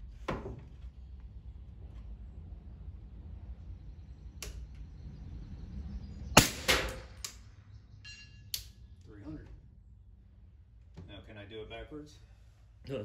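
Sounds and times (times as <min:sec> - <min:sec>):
loud gunshot: 0:06.4 - 0:07.2.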